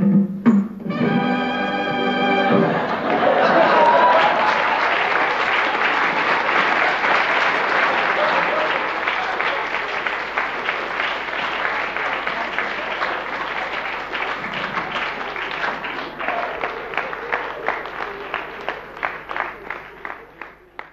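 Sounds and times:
audience applauding: 2.1 - 20.9.

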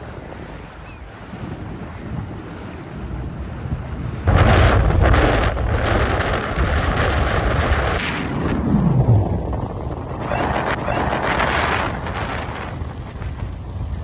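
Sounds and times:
boat engine: 0.0 - 8.4
water rushing: 0.0 - 14.0
wind buffeting microphone: 0.0 - 14.0.

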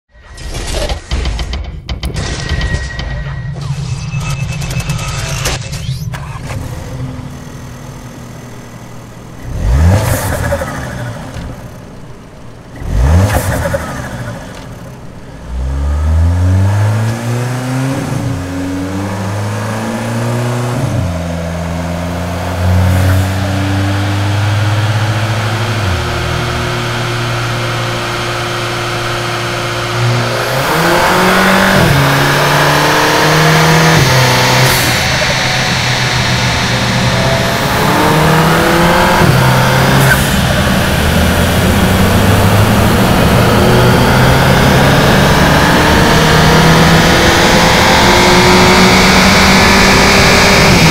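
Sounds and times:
car engine revving: 4.2 - 50.9.

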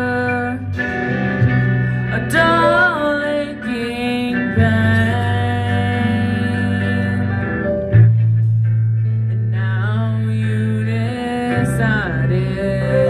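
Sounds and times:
person singing long notes: 2.1 - 7.5, 9.6 - 13.0.

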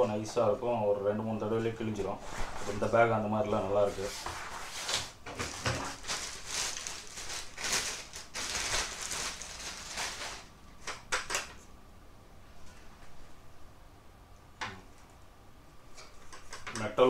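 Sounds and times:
plastic wrapping and bag rustling: 3.6 - 10.6.

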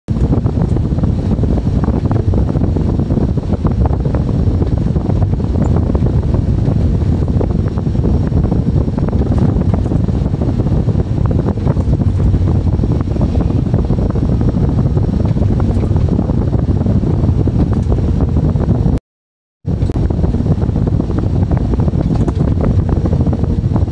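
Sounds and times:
dense rattle: 8.8 - 18.2, 21.8 - 22.9.

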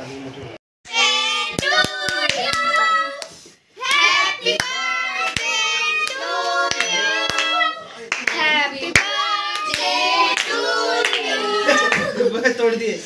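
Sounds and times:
people singing together: 0.9 - 12.2
hands clapping in rhythm: 1.5 - 11.3.

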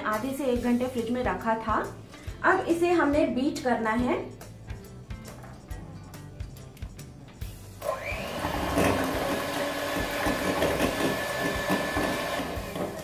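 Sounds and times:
electric hand mixer running: 7.8 - 13.0.

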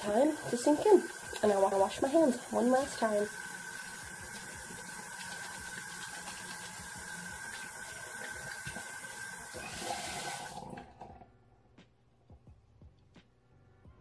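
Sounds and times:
tap water running over hands: 0.0 - 10.9.

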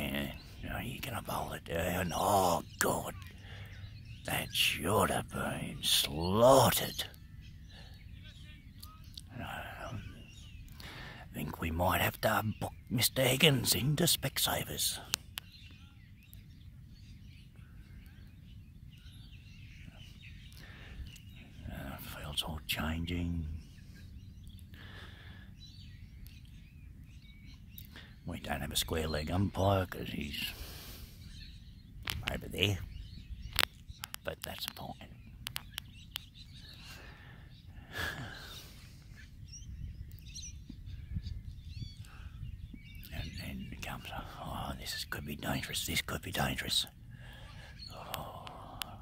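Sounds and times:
faint bird chirps: 0.0 - 49.0
wind rumble on microphone: 30.6 - 45.6.

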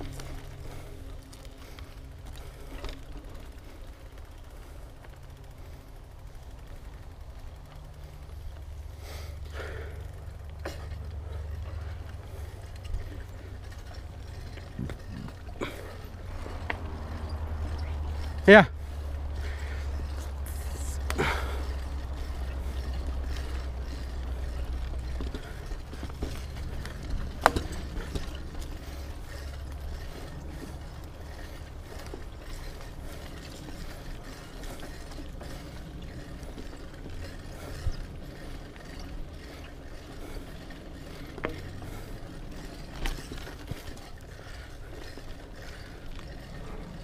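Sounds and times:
bike freehub ratcheting: 0.0 - 47.0
bike knocking over bumps: 19.3 - 46.1.

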